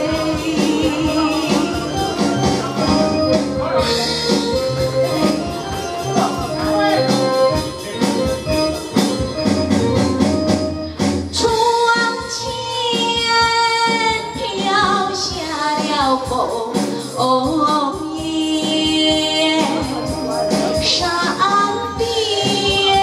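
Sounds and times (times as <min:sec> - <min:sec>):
woman singing opera over pa: 0:00.0 - 0:01.8, 0:20.8 - 0:23.0
instrumental accompaniment: 0:00.0 - 0:23.0.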